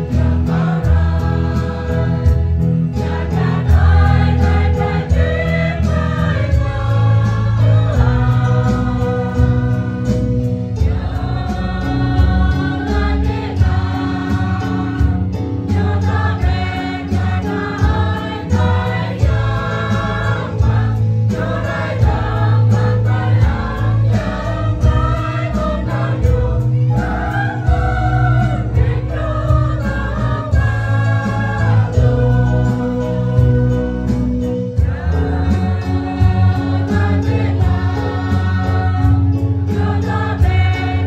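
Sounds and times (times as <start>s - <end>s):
choir singing: 0.0s - 41.0s
low bass notes: 0.0s - 41.0s.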